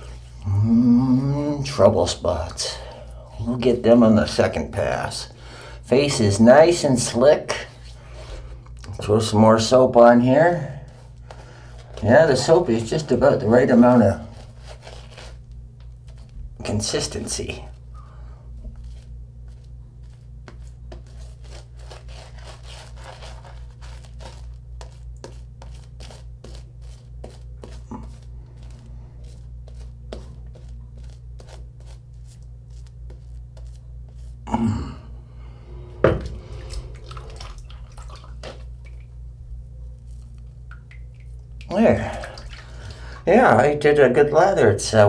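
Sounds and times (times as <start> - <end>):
steady low hum: 0.0 - 45.0
shaving brush strokes on face: 18.8 - 34.4.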